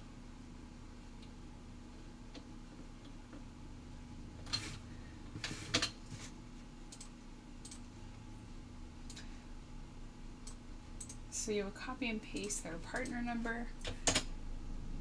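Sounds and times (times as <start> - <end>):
faint steady hum: 0.0 - 15.0
keyboard and mouse clicks: 6.9 - 7.8, 10.4 - 11.2.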